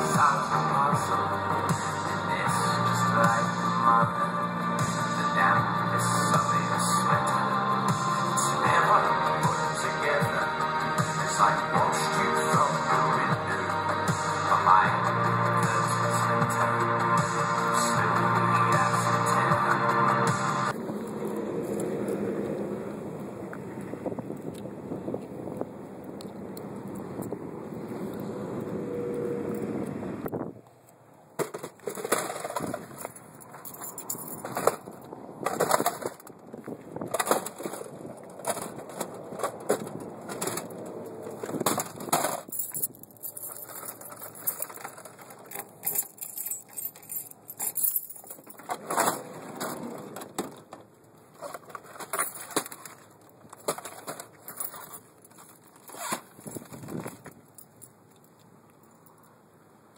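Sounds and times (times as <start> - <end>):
wind buffeting microphone: 20.8 - 30.6, 34.4 - 40.3, 56.4 - 57.4.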